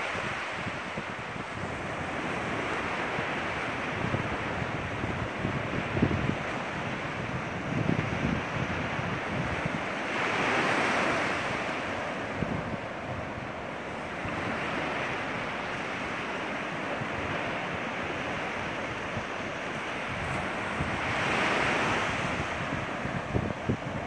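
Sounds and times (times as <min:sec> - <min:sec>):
surf washing onto beach: 0:00.0 - 0:24.0
wind buffeting microphone: 0:00.0 - 0:24.0.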